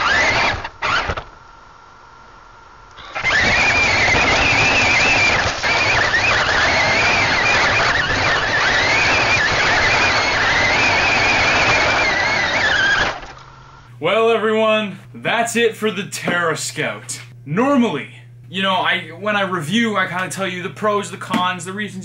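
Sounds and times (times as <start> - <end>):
electric motor whine: 0.0 - 2.2, 2.9 - 15.7.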